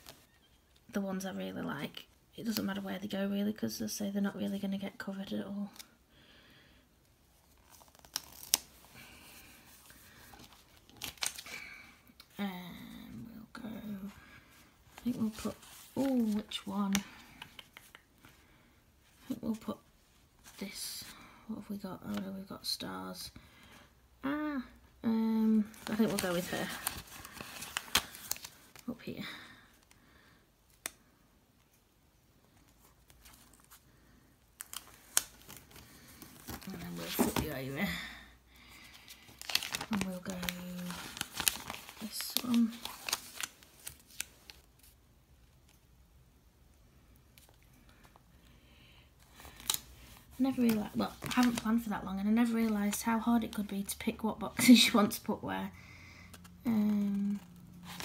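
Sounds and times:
paper stickers rustling and peeling: 0:07.5 - 0:11.5, 0:25.6 - 0:28.9, 0:34.6 - 0:37.7, 0:39.0 - 0:45.8, 0:49.2 - 0:53.8, 0:56.4 - 0:58.0.

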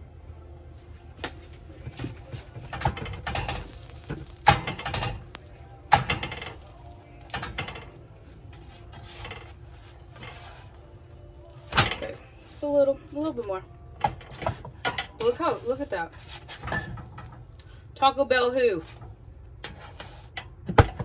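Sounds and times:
utensils knocking pans and plates: 0:02.7 - 0:08.0
rustling: 0:03.1 - 0:07.3.

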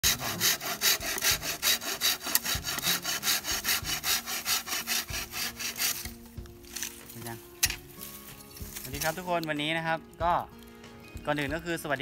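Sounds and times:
hand saw cutting bamboo: 0:00.0 - 0:07.8, 0:08.7 - 0:09.4.

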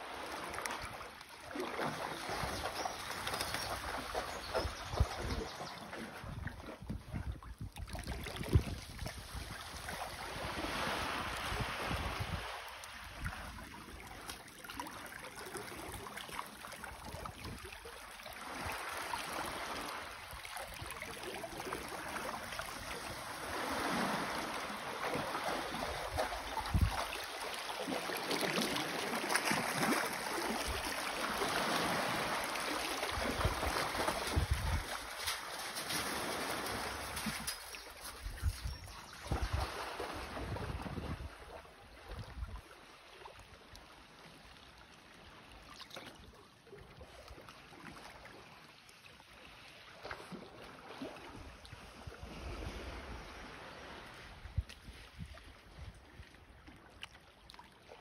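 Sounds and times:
seawater lapping among rocks: 0:00.0 - 0:58.0
wind buffeting the microphone: 0:06.2 - 0:09.9, 0:11.0 - 0:12.5, 0:26.6 - 0:27.1, 0:33.3 - 0:35.0, 0:38.2 - 0:41.4.

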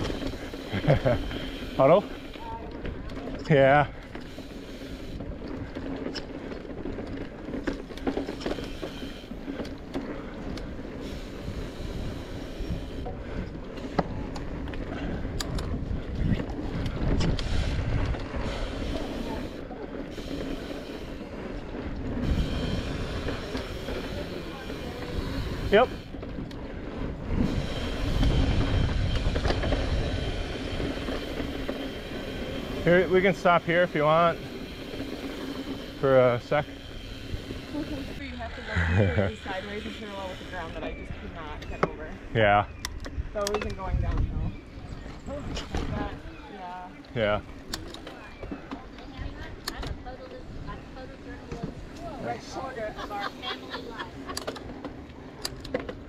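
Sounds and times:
bike clicks and rattles: 0:00.0 - 0:56.0
tyres rumbling on dirt: 0:00.0 - 0:56.0
wind on microphone: 0:11.1 - 0:19.6, 0:21.1 - 0:32.8, 0:39.9 - 0:46.5, 0:47.4 - 0:52.3.

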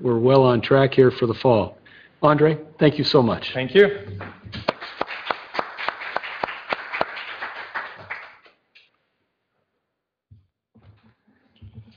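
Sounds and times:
audience applauding: 0:04.1 - 0:08.6.

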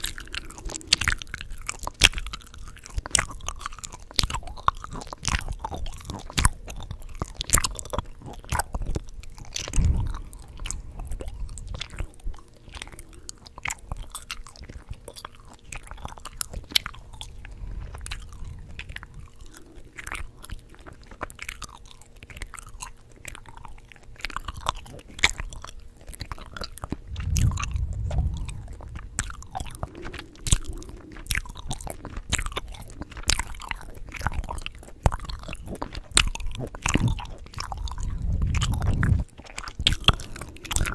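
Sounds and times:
chewing gum smacks: 0:00.0 - 0:40.9
low thumps: 0:26.9 - 0:30.7.

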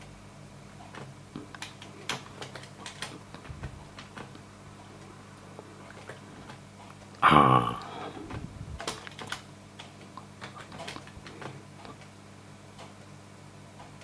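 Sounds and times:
steady low hum: 0:00.0 - 0:14.0
keyboard keys clicking: 0:00.9 - 0:04.4, 0:08.8 - 0:12.1.

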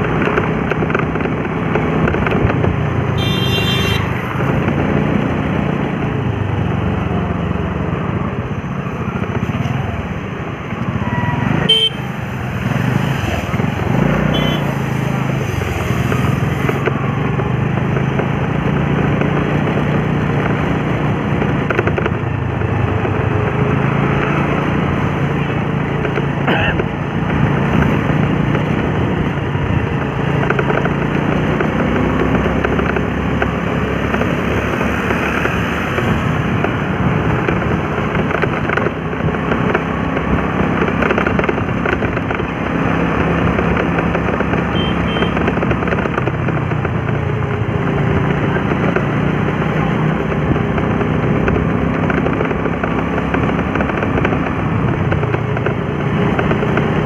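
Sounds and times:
road and wind noise: 0:00.0 - 0:57.0
motorbike engine running: 0:11.5 - 0:57.0.

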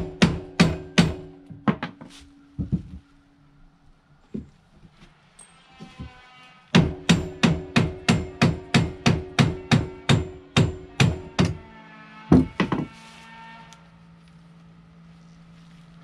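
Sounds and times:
hammer striking metal hub: 0:06.8 - 0:11.6.

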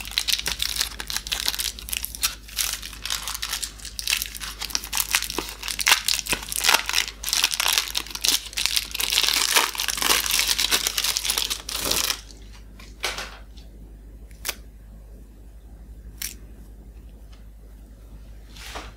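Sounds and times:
foil wrapper crinkling and tearing: 0:00.0 - 0:12.9.

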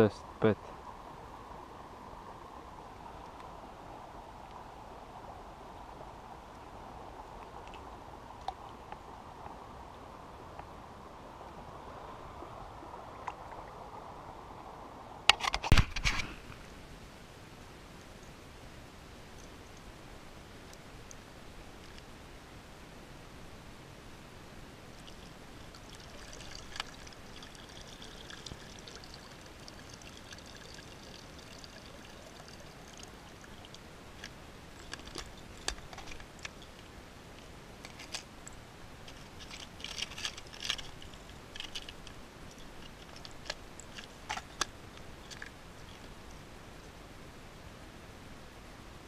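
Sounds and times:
water gurgling in plastic bottle: 0:25.0 - 0:33.8.

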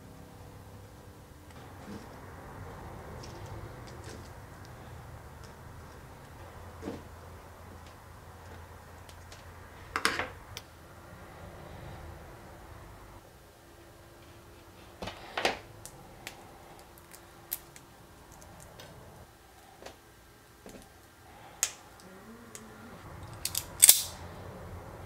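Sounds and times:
hand tools snipping and clicking: 0:23.3 - 0:24.2.

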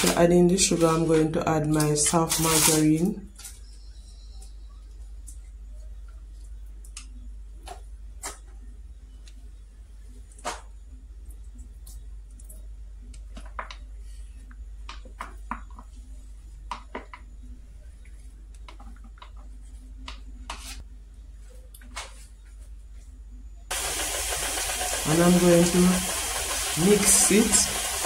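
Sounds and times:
stand mixer whirring: 0:23.7 - 0:28.0.

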